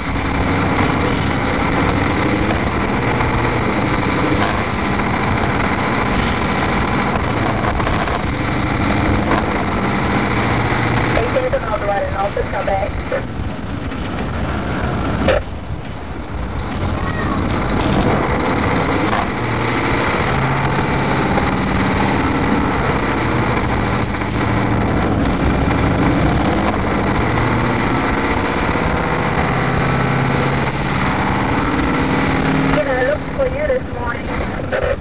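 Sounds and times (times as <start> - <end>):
bus diesel engine drone: 0.0 - 35.0.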